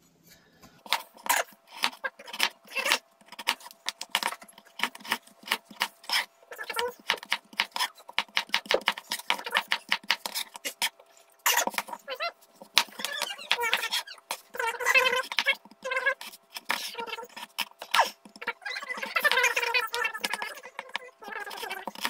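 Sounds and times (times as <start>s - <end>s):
knife chopping on plastic board: 0.8s - 10.9s, 12.6s - 18.4s, 19.0s - 22.0s.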